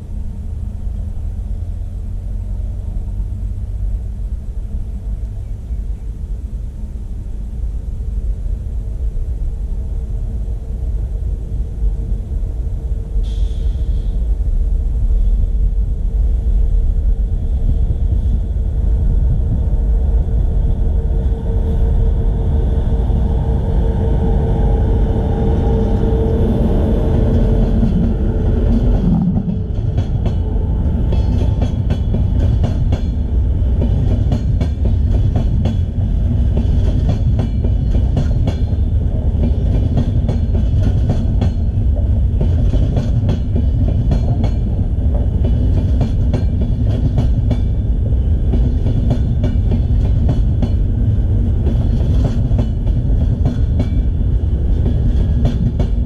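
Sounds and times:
train rumbling past with hum: 0.0s - 56.0s
train wheels clattering: 27.0s - 56.0s.

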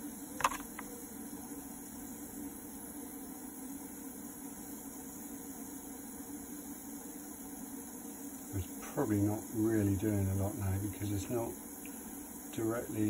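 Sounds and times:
welder humming with hiss: 0.0s - 13.0s.

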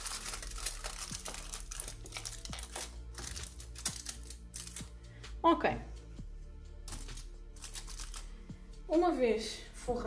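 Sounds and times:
aluminium foil crinkling: 0.0s - 4.9s, 6.9s - 8.3s.

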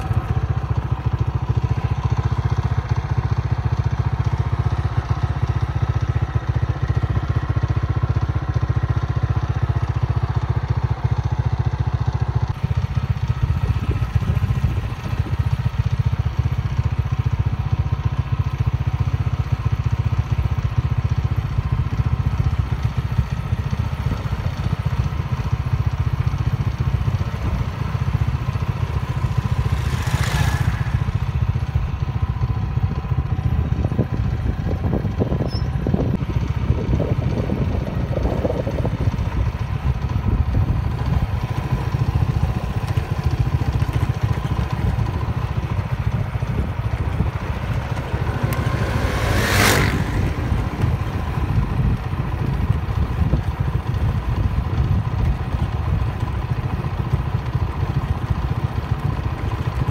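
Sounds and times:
wind buffeting microphone: 12.5s - 16.3s, 23.0s - 56.7s.

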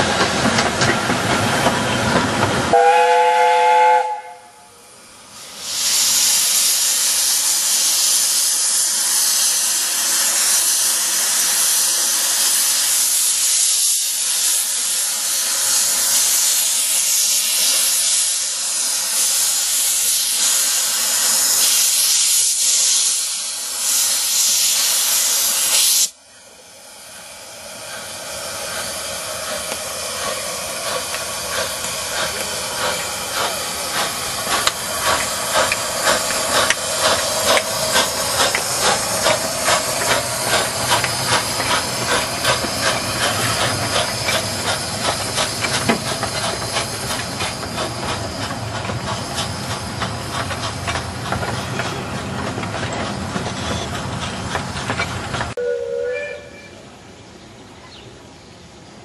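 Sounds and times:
steam locomotive exhaust chuffs: 0.0s - 56.9s
steam hissing: 0.0s - 57.0s.

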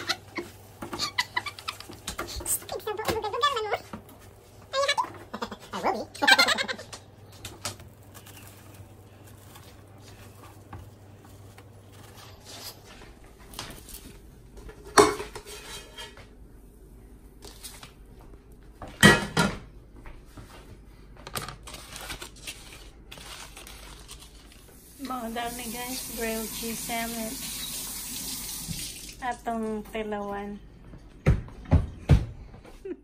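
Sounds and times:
spatula scraping frying pan: 15.2s - 16.2s.

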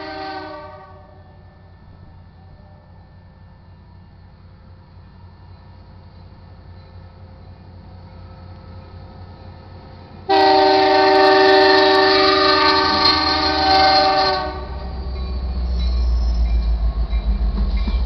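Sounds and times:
locomotive horn blast: 0.0s - 1.3s, 10.3s - 15.0s
locomotive rumbling past: 0.0s - 18.0s.

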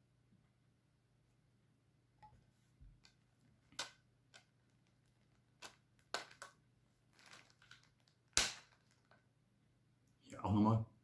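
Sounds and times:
plastic sleeve rustling: 3.0s - 9.2s.

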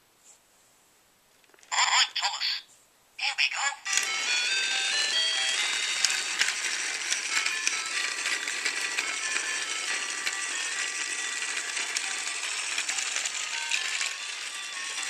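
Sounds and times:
toy train motor whirring: 3.9s - 15.0s
wheels clicking over track joints: 4.0s - 15.0s.

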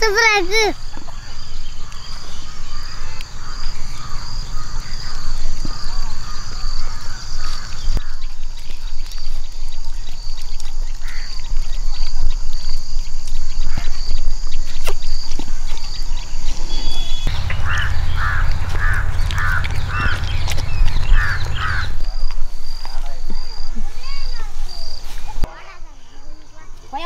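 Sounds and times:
birds chirping: 0.0s - 27.0s
low rumble: 17.2s - 22.3s.

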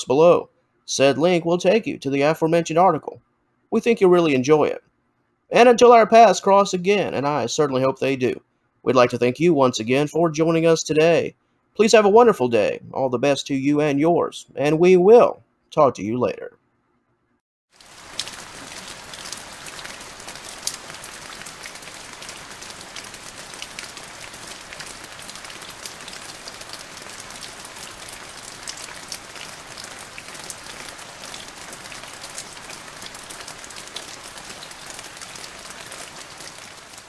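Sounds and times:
rain falling: 17.7s - 37.0s.

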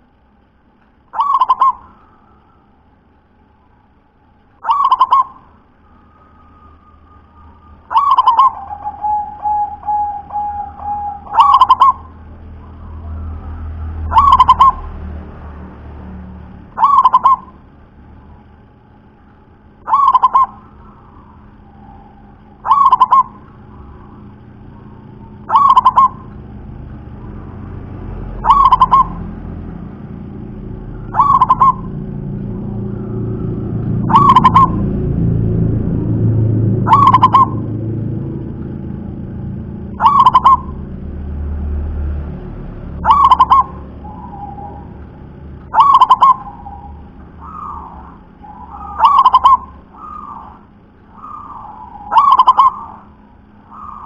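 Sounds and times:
low rumble: 0.0s - 54.0s
dove cooing: 1.1s - 2.6s, 4.6s - 15.0s, 16.7s - 17.6s, 19.6s - 35.6s, 36.4s - 38.2s, 39.5s - 41.1s, 43.0s - 45.0s, 45.7s - 54.0s.

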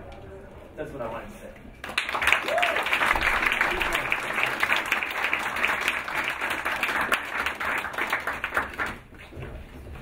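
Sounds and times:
small audience applauding: 1.8s - 9.1s.

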